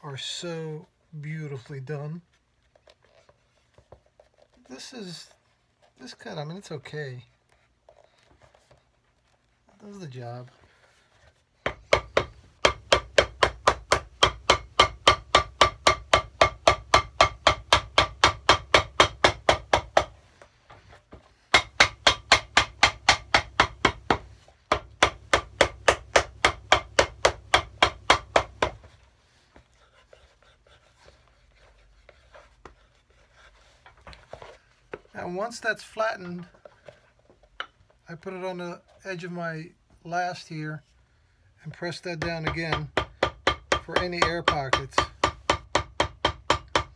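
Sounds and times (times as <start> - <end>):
hammer tapping leather sole: 11.6 - 20.2, 21.5 - 29.0, 42.2 - 46.9.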